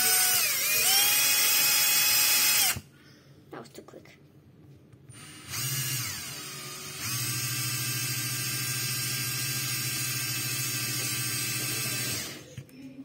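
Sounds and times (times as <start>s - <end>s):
drill motor whirring: 0.0s - 2.8s, 5.1s - 12.5s.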